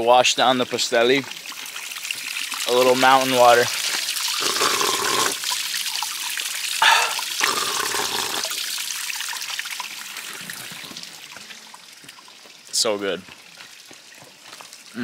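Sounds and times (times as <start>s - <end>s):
water trickling down rock: 0.0s - 15.0s.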